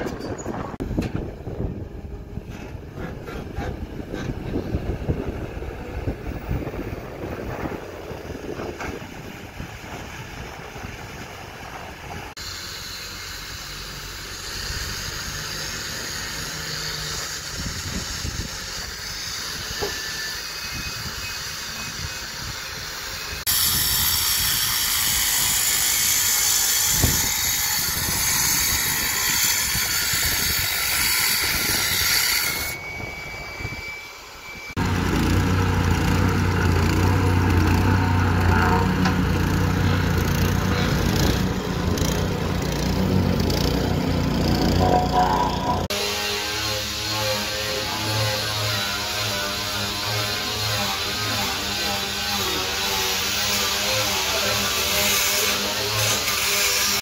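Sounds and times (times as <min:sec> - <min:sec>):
angle grinder cutting steel: 0:12.4 - 0:57.0
excavator engine running: 0:34.7 - 0:45.9.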